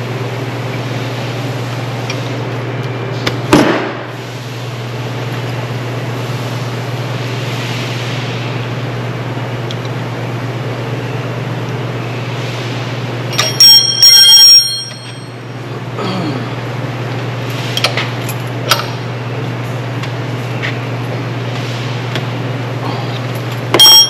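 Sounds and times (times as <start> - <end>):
low machine hum: 0.0 - 24.0.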